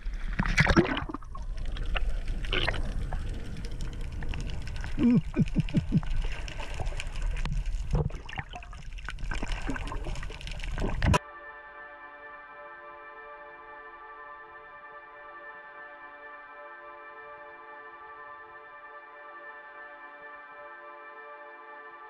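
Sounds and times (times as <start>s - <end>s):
sea water sloshing and splashing: 0.0s - 5.0s, 5.6s - 11.2s
gurgling bubbles: 0.0s - 11.2s
muffled underwater diving: 0.0s - 11.2s.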